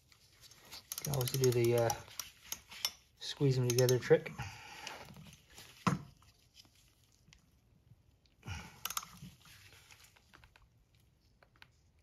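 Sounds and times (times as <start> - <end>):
metal tool clicks: 0.9 - 3.0, 3.6 - 4.2.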